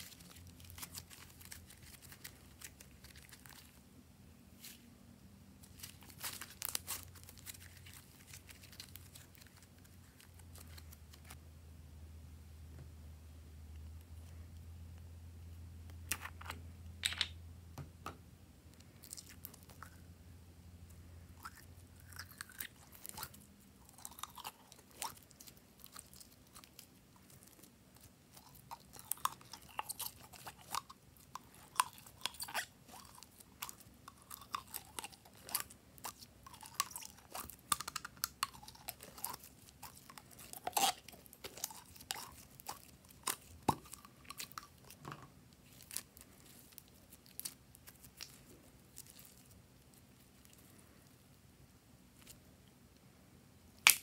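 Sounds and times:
slime squelching: 0:00.0 - 0:03.8, 0:05.6 - 0:11.4, 0:21.3 - 0:51.3.

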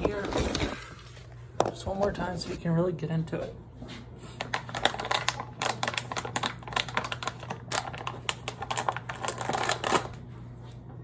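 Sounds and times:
plastic bag crinkling: 0:00.0 - 0:01.4, 0:04.4 - 0:10.2.

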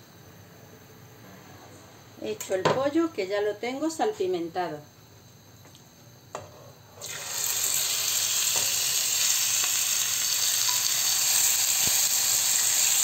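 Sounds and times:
chicken sizzling in hot oil: 0:07.0 - 0:13.0.

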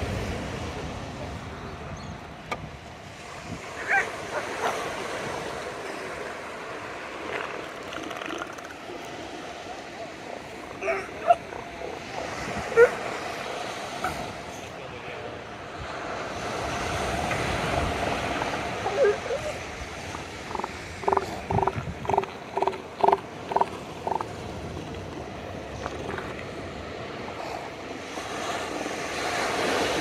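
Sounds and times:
surf washing: 0:00.0 - 0:30.0
elephant seal pulsed calls: 0:18.8 - 0:24.4.

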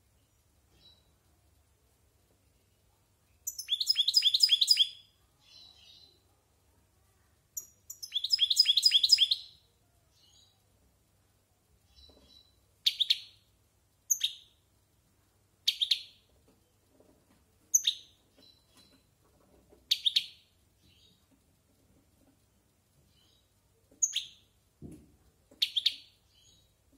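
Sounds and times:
goldfinch singing: 0:03.5 - 0:05.7, 0:07.6 - 0:09.5.

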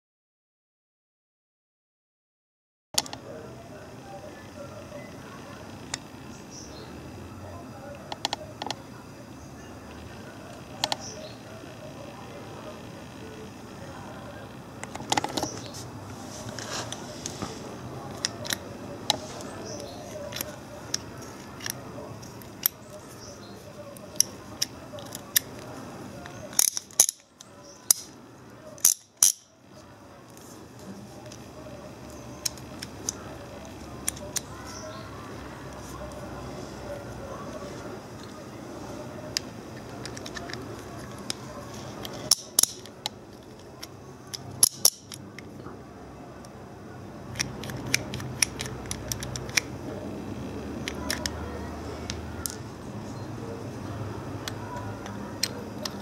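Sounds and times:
ratchet wrench clicking: 0:26.5 - 0:27.2, 0:28.8 - 0:29.5, 0:42.0 - 0:42.9, 0:44.6 - 0:45.2.

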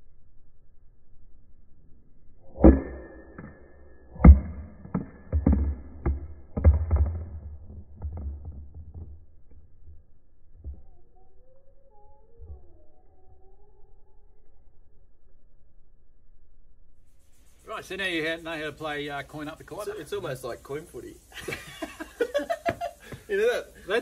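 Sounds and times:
plastic jug knocking on concrete: 0:04.3 - 0:09.2.

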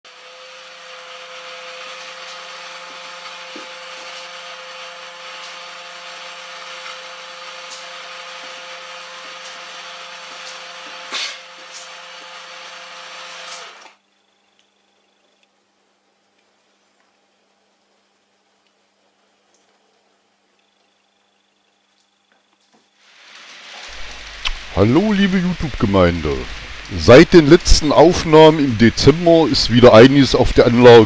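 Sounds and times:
model locomotive motor whine: 0:00.1 - 0:14.4, 0:23.0 - 0:31.0.

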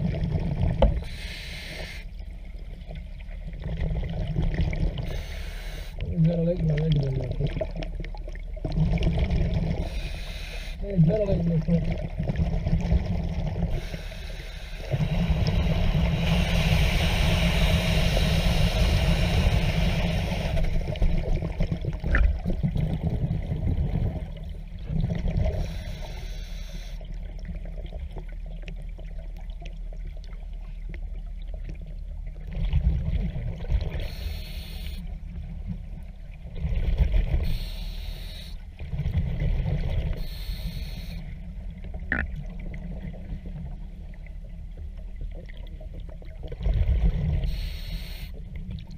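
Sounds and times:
hissing inhales: 0:01.0 - 0:02.1, 0:05.1 - 0:06.0, 0:09.8 - 0:10.8, 0:13.8 - 0:20.6, 0:25.6 - 0:27.0, 0:34.0 - 0:35.0, 0:37.4 - 0:38.6, 0:40.2 - 0:41.2, 0:47.5 - 0:48.4.

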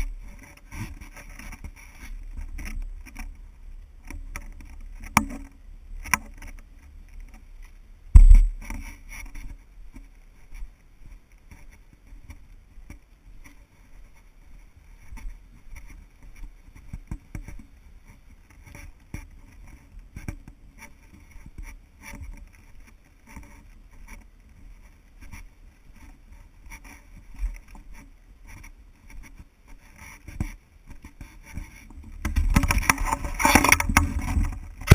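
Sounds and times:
rubbing on camera body: 0:00.0 - 0:03.4, 0:13.4 - 0:34.9
camera knocks and rustle: 0:08.2 - 0:08.8, 0:32.2 - 0:34.9.

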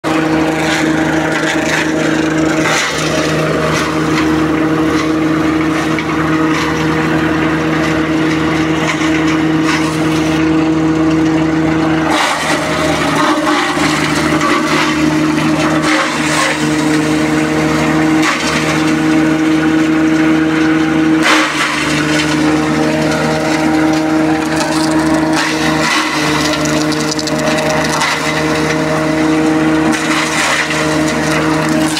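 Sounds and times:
shredder machine drone: 0:00.0 - 0:31.9
stems cracking as chopped: 0:21.2 - 0:28.7.

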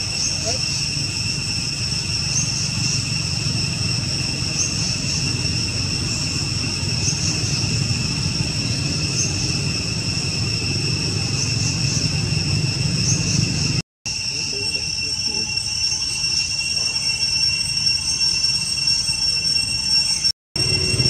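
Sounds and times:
faint chirps: 0:00.0 - 0:21.0
insects droning: 0:00.0 - 0:21.0.

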